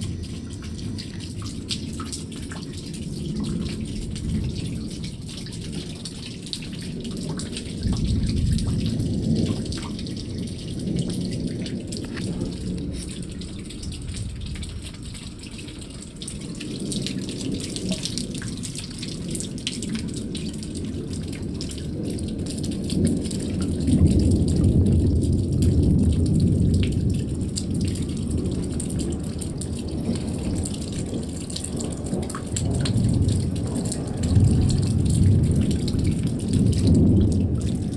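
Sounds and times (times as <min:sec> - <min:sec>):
raindrops ticking and dripping: 0:00.0 - 0:37.9
thunder rumbling: 0:00.0 - 0:37.9.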